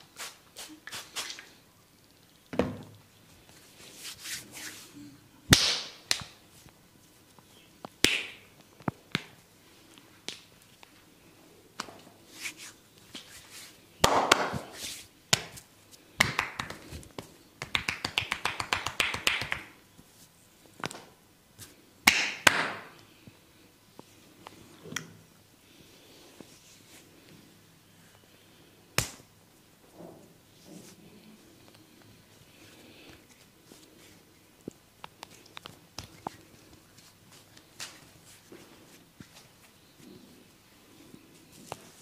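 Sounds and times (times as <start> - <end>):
skin rubbing and swishing: 3.6 - 5.0, 12.2 - 13.8.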